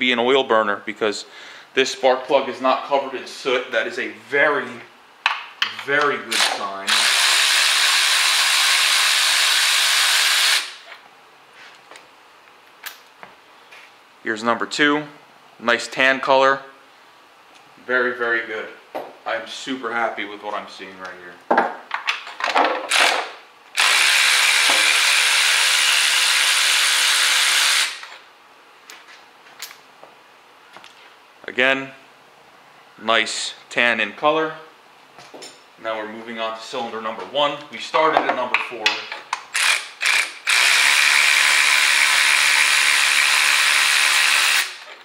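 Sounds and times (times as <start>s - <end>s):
electric ratchet whirring: 6.3s - 10.9s, 22.9s - 28.2s, 39.5s - 45.0s.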